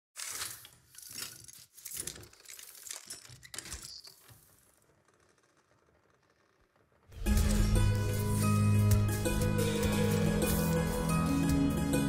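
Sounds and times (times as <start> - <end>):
mechanical clicks and clatters: 0.2 - 7.6.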